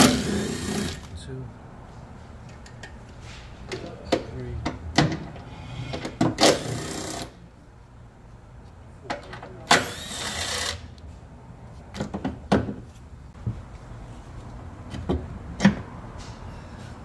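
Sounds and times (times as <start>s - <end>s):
power tool bursts: 0.0s - 1.0s, 9.7s - 10.8s.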